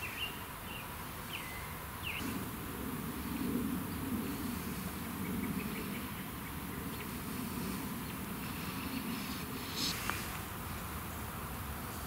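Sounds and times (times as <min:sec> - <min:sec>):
low wavering buzz: 0:02.0 - 0:12.0
bird chirps: 0:03.1 - 0:10.3.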